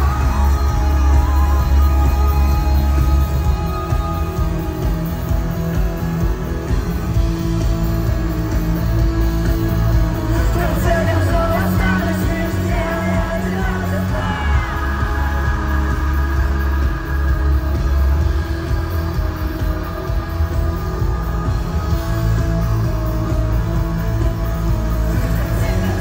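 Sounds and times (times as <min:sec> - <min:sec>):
live band music over pa: 0:00.0 - 0:26.0
person singing: 0:10.3 - 0:18.0.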